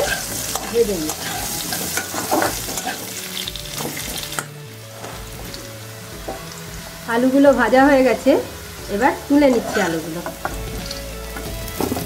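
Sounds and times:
spatula scraping pan: 0.0 - 4.3, 9.3 - 10.6
potato wedges sizzling in oil: 0.0 - 12.0.

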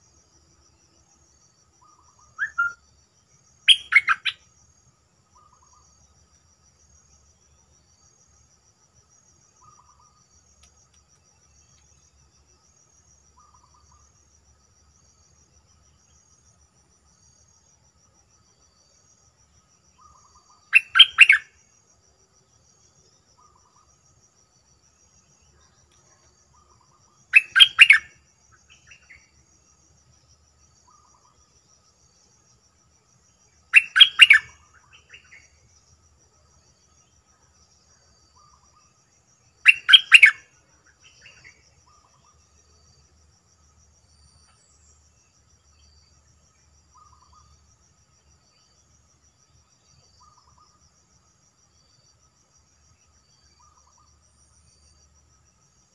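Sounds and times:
faint high insect buzz: 0.0 - 55.9
bird singing loud phrases: 1.8 - 2.8, 3.7 - 4.4, 20.0 - 21.5, 27.3 - 28.1, 33.7 - 35.5, 39.6 - 40.4
faint short bird calls: 1.8 - 2.8, 3.7 - 4.4, 20.0 - 21.5.

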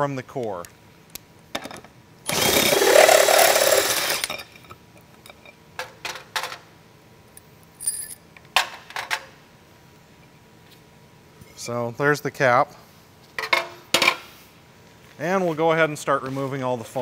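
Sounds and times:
cordless power driver spinning: 2.3 - 4.4.

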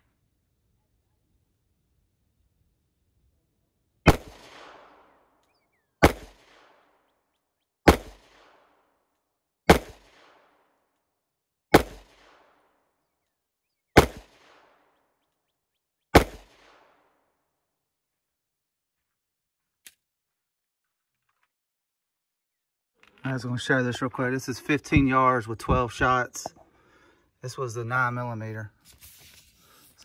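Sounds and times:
pistol shots with echo: 4.0 - 5.4, 6.0 - 7.0, 7.8 - 8.9, 9.7 - 10.8, 11.7 - 12.8, 14.0 - 15.0, 16.1 - 17.2.

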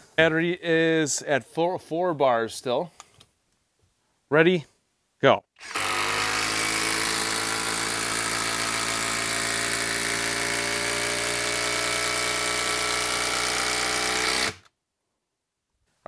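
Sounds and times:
impact driver hammering: 5.6 - 14.7.

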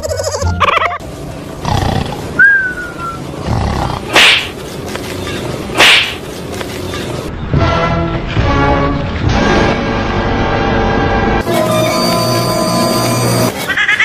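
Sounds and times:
dog growling and snarling: 1.6 - 2.3.

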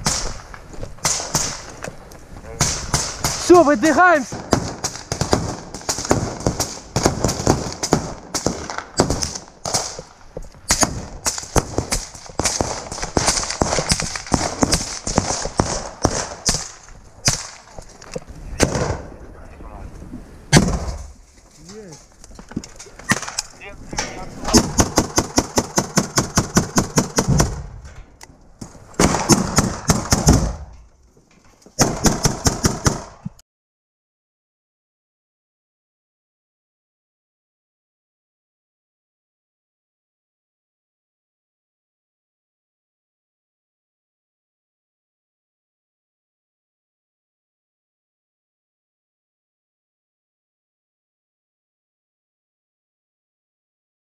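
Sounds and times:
automatic gunfire bursts: 4.3 - 10.0.

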